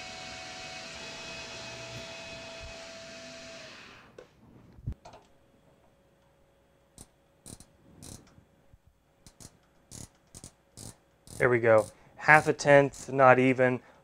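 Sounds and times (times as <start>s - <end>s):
micrometer ratchet clicking: 7.0s - 8.3s, 9.2s - 13.1s.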